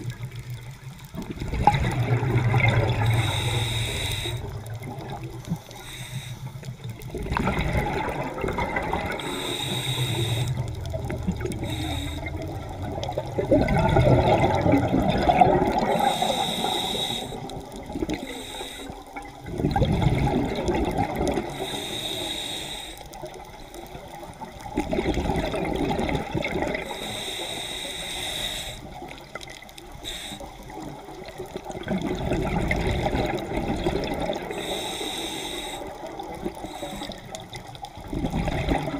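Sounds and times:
bubbling exhale underwater: 0:00.0 - 0:06.0, 0:06.8 - 0:21.8, 0:23.2 - 0:27.2, 0:30.4 - 0:35.0, 0:35.7 - 0:38.9
hissing inhale through regulator: 0:01.9 - 0:07.6, 0:08.8 - 0:13.3, 0:14.5 - 0:19.4, 0:21.4 - 0:23.8, 0:26.8 - 0:31.6, 0:34.0 - 0:37.9.

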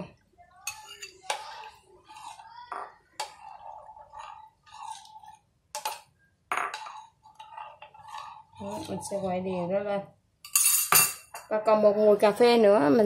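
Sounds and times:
utensil clinking against bowls: 0:00.7 - 0:09.4.

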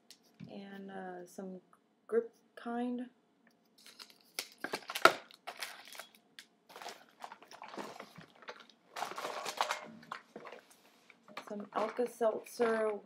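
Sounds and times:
packaging rustling and crinkling: 0:03.8 - 0:13.0.

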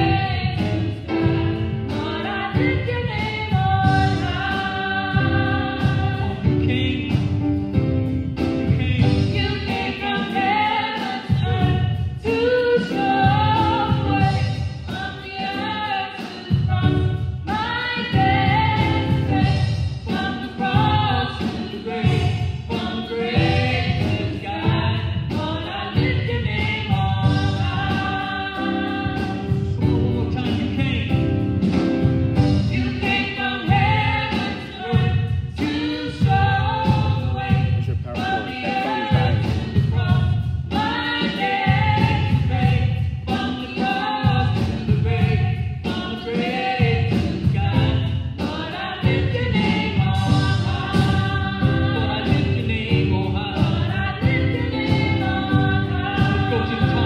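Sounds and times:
accompaniment with low beat: 0:00.0 - 0:09.8, 0:21.9 - 0:43.4, 0:46.8 - 0:48.3, 0:49.0 - 0:57.0
vocal trio singing in harmony: 0:00.0 - 0:57.0.

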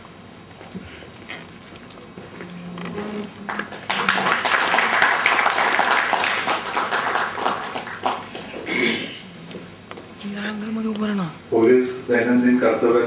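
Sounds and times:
applause: 0:03.4 - 0:08.7.

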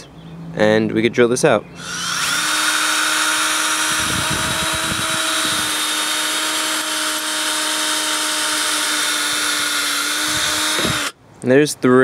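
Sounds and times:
low rumbling: 0:01.6 - 0:11.1
cordless drill boring wood: 0:01.8 - 0:11.2.

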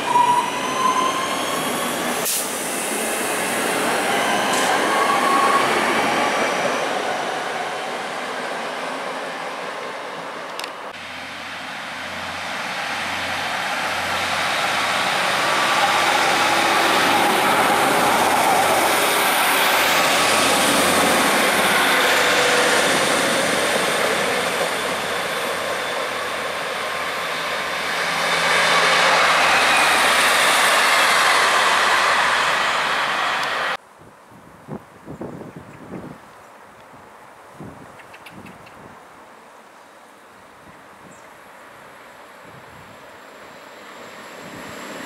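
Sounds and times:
train wheels rumbling on rail: 0:00.0 - 0:08.0, 0:10.4 - 0:33.8.

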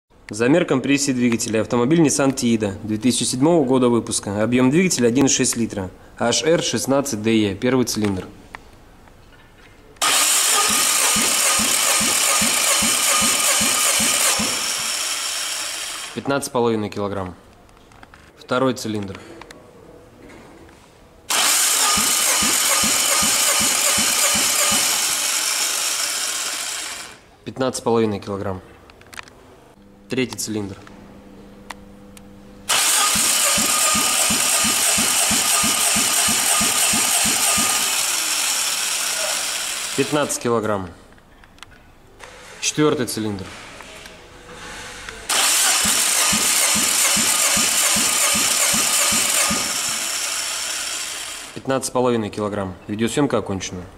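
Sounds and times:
starter motor cranking engine: 0:10.0 - 0:16.3, 0:21.3 - 0:27.3, 0:32.7 - 0:40.4, 0:45.3 - 0:51.6.

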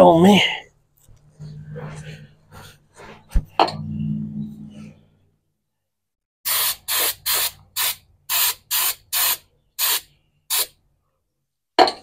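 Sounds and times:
spray hissing bursts: 0:06.5 - 0:10.7.

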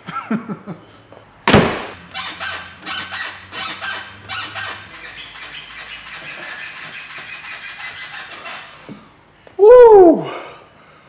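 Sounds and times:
loud thump: 0:01.4 - 0:02.0
car suspension creaking and squeaking: 0:01.9 - 0:09.4.

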